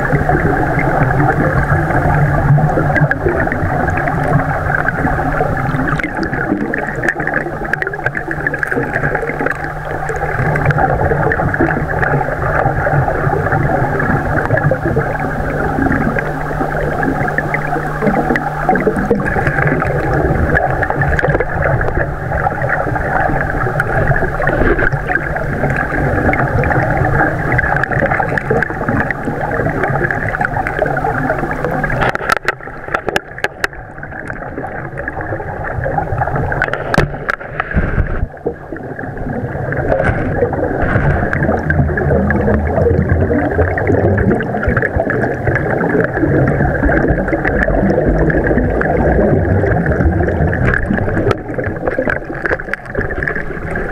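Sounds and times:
underwater rushing water: 0.0 - 53.9.

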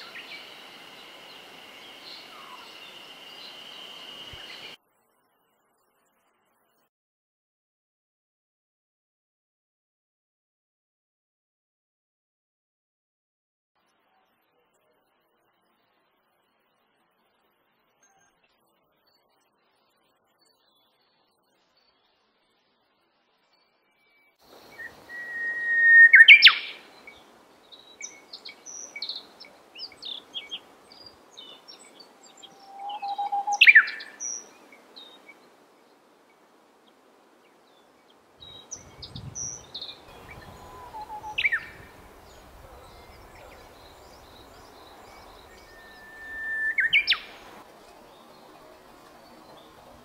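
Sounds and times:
faint bird chirps: 0.0 - 6.9, 13.9 - 37.0, 37.6 - 50.0.

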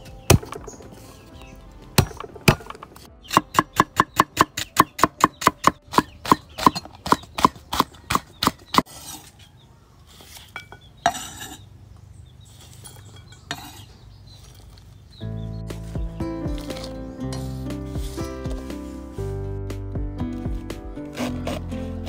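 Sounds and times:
cleaver chopping on wooden board: 0.3 - 1.0, 2.0 - 8.9.

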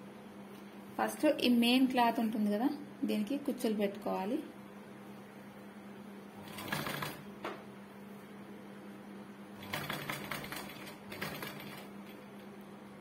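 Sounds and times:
steady low hum: 0.0 - 13.0
sewing machine stitching: 6.4 - 7.3, 9.6 - 11.9.

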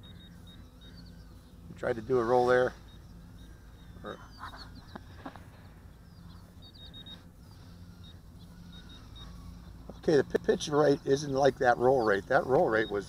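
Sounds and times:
faint high chirps: 0.0 - 13.0
low steady rumble: 0.0 - 13.0.

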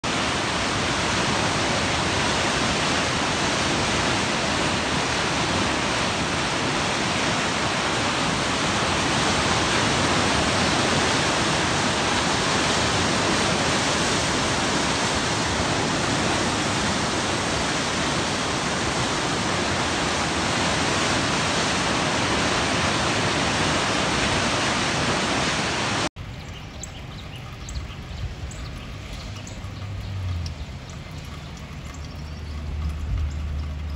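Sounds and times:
floodwater rushing: 0.0 - 33.9.

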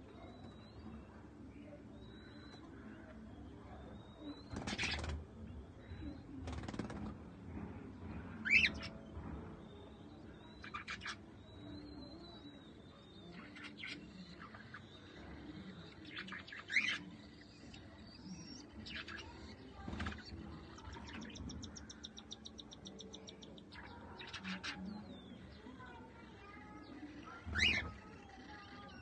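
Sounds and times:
cockatiels chirping: 8.4 - 9.0, 10.5 - 25.9, 26.5 - 29.0.

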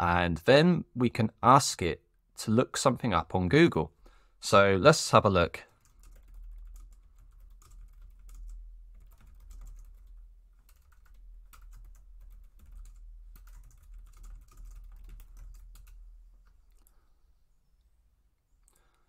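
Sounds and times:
typing on computer keyboard: 5.7 - 16.9.

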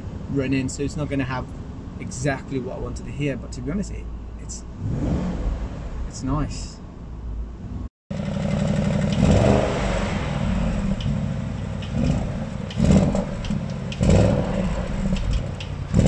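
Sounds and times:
car engine idling with throttle blips: 0.0 - 16.0.

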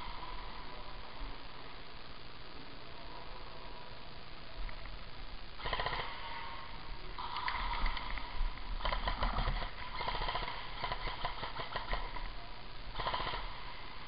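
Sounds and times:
airsoft guns firing bursts: 5.6 - 6.4, 7.2 - 12.2, 12.9 - 13.7.

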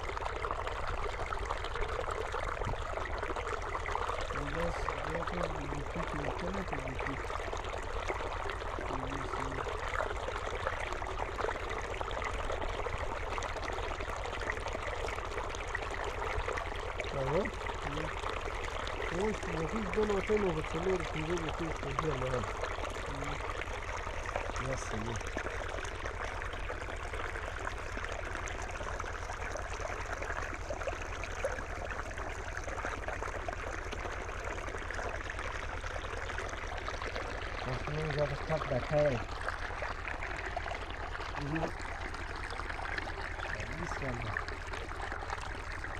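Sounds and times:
steady low hum: 0.0 - 32.8, 37.1 - 45.9
small splashy ticks: 0.0 - 45.9
water trickling over rock: 0.0 - 45.9
low steady drone: 4.3 - 7.3, 19.0 - 23.7.

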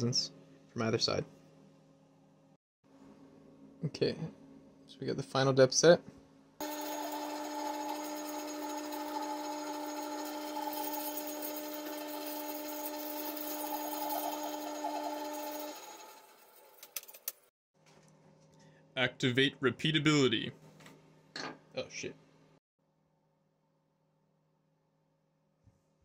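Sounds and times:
milling machine cutting metal: 6.6 - 16.6.

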